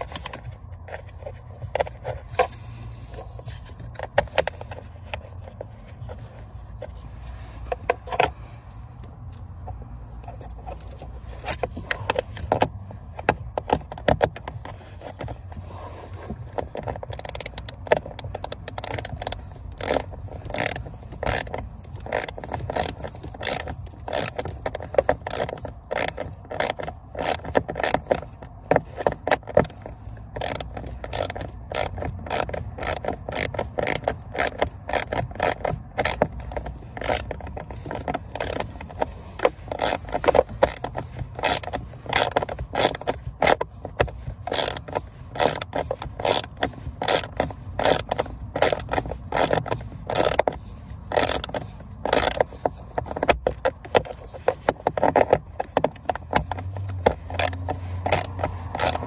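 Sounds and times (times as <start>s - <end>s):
ratchet wrench clicking: 16.4s - 59.0s.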